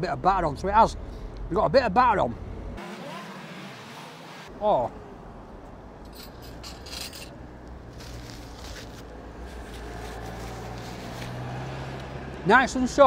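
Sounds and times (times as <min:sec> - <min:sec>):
street traffic hum: 0:00.0 - 0:13.0
paper napkin rustling: 0:07.9 - 0:11.4.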